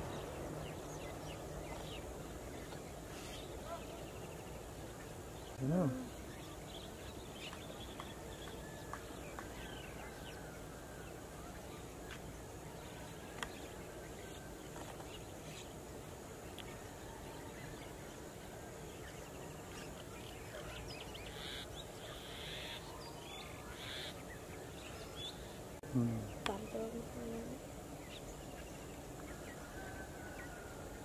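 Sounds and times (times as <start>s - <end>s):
background hiss: 0.0s - 31.0s.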